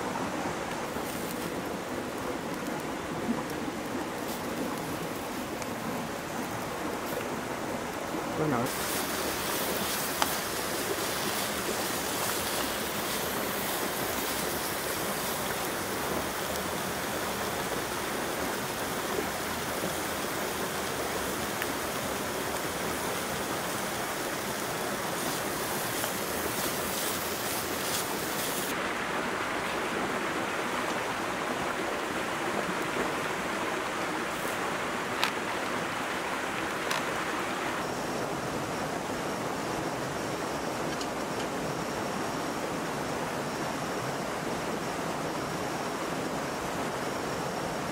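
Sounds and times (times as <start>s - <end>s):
food sizzling in a pan: 8.7s - 15.6s, 24.7s - 28.8s.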